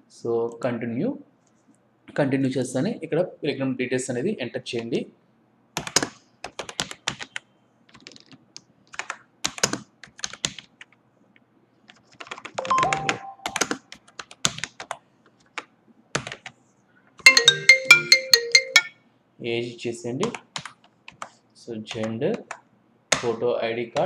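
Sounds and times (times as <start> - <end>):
computer keyboard typing: 5.8 - 11.0, 11.9 - 16.6, 20.2 - 23.2
chime-like music: 12.6 - 13.6, 17.3 - 19.0.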